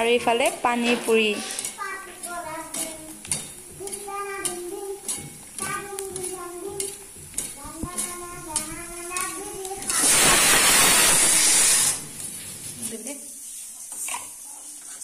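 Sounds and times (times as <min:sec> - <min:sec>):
food sizzling in hot oil: 0:00.0 - 0:15.0
slotted spoon ticking against pan: 0:01.6 - 0:10.0.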